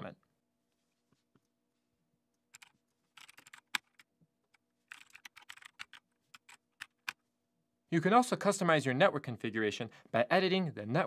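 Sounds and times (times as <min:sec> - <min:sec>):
computer keyboard typing: 0:02.5 - 0:04.1, 0:04.9 - 0:07.2.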